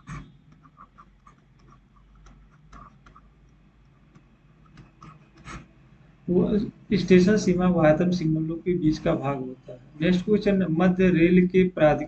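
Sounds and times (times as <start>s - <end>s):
stylus tapping on screen: 0.0s - 5.7s.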